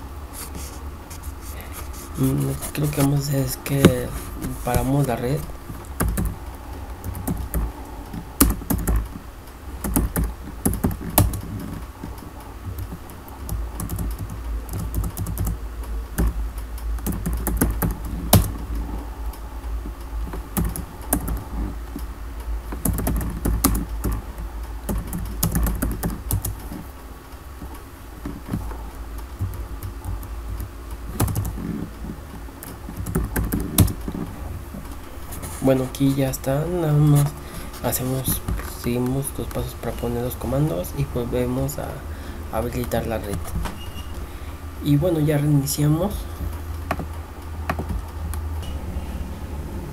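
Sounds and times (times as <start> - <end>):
steady low hum: 0.0 - 49.9
computer keyboard typing: 1.9 - 6.4, 7.0 - 9.2, 9.8 - 16.4, 17.0 - 19.4, 20.2 - 22.1, 22.7 - 26.9, 27.6 - 34.3.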